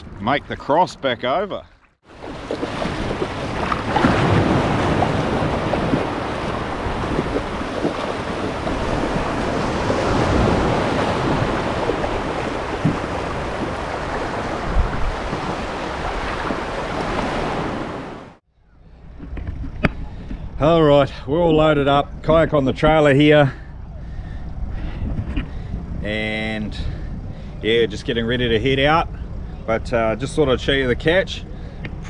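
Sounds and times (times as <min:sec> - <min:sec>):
small surf washing: 0:02.0 - 0:18.4
water splashing around legs: 0:02.1 - 0:17.8
wind buffeting microphone: 0:02.1 - 0:18.2, 0:23.7 - 0:30.4.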